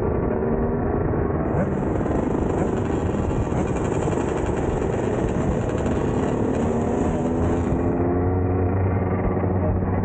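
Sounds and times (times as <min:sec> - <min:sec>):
dirt bike engines revving: 0:01.4 - 0:10.0.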